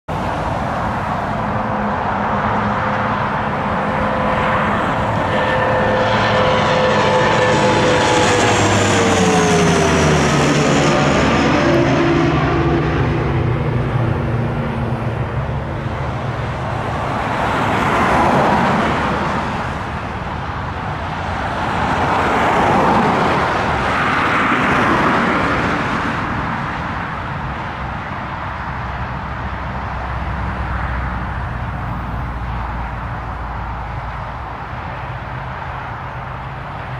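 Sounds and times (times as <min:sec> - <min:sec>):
aircraft rolling on runway: 0:00.1 - 0:36.9
turboprop aircraft passing overhead: 0:00.1 - 0:36.9.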